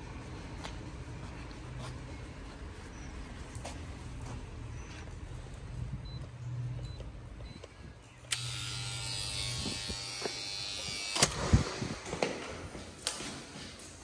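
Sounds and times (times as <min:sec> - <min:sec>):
motor switch click: 0:08.3 - 0:11.4
small electric motor buzzing: 0:08.3 - 0:11.8.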